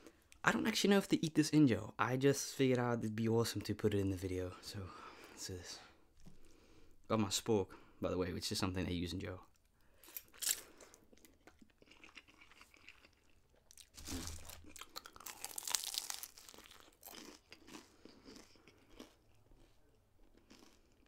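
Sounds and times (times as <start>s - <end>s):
crunchy chewing: 10.0s - 21.0s.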